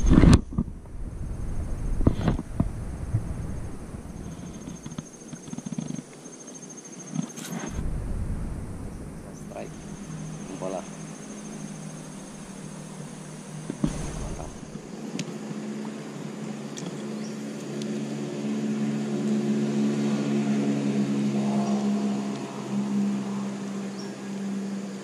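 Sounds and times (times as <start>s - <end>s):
low mechanical hum: 0.0s - 5.4s, 7.6s - 25.0s
sharp thump: 7.6s - 14.8s.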